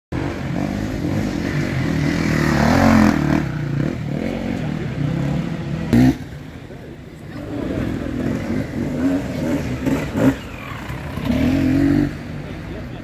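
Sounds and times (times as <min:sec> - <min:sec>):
dirt bike engine revving: 0:07.9 - 0:12.3.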